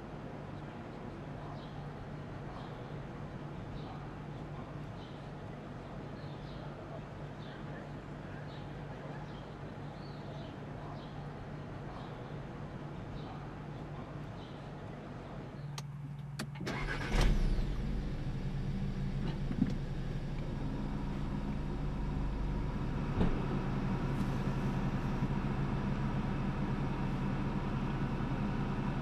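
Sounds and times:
car engine starting and idling: 0:15.8 - 0:29.0.

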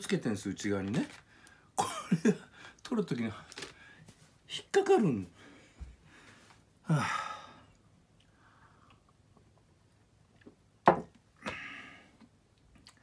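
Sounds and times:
breathy sigh: 0:06.8 - 0:07.8, 0:11.4 - 0:12.2.

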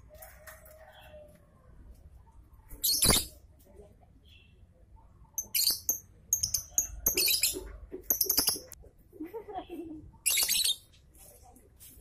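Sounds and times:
lovebird chirping: 0:05.4 - 0:08.8, 0:10.2 - 0:10.9.

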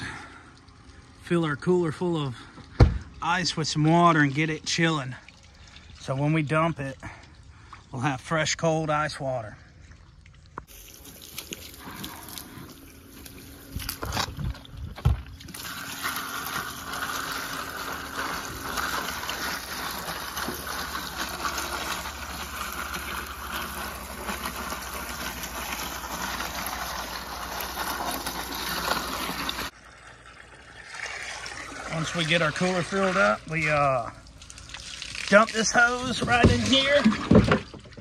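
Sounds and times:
loud thump: 0:02.8 - 0:03.1
water pouring onto ice: 0:10.7 - 0:14.7, 0:15.4 - 0:37.6.

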